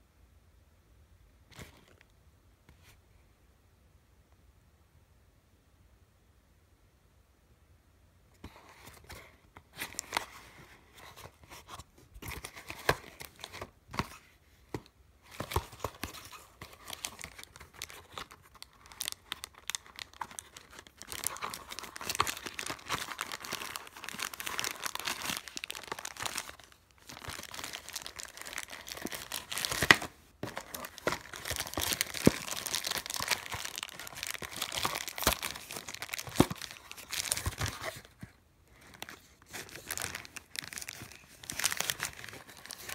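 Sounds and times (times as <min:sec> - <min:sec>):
plastic packaging crinkling: 0:15.3 - 0:42.9.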